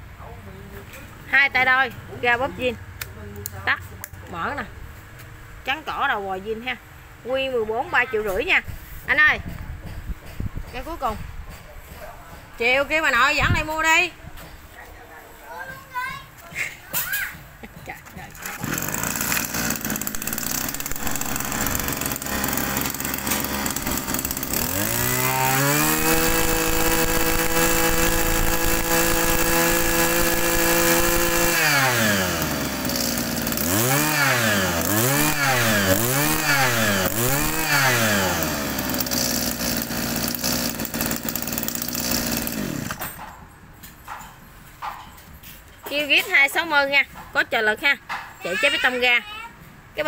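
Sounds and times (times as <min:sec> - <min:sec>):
brush cutter engine revving: 0:18.2 - 0:43.0.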